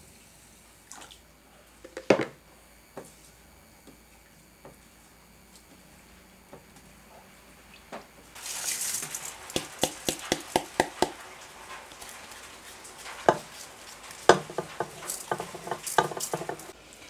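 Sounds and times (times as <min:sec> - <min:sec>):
rice pouring into pot: 0:08.4 - 0:16.8
bowl knocking: 0:14.3 - 0:16.7.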